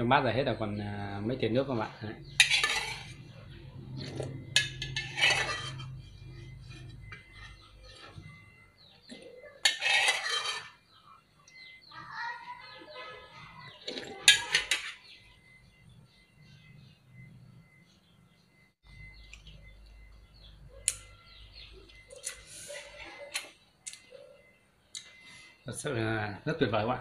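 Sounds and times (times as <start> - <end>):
metal spoon scraping metal bowl: 2.2 - 11.6, 13.8 - 15.1.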